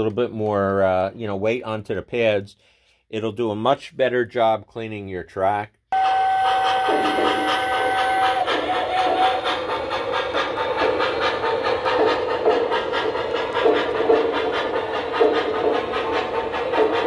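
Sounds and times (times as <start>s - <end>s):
model steam train chuffing: 6.0s - 17.0s
wheels clattering on track: 6.0s - 17.0s.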